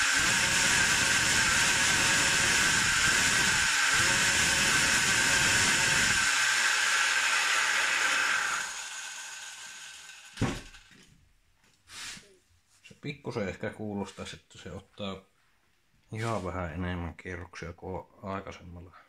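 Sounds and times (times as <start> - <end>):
two-stroke engine revving: 0.0 - 9.9
short knock: 10.4 - 10.7.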